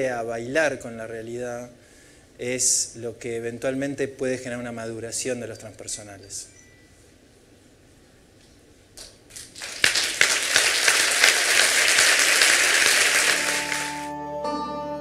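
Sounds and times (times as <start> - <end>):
audience applauding: 9.3 - 14.1
music: 12.9 - 15.0.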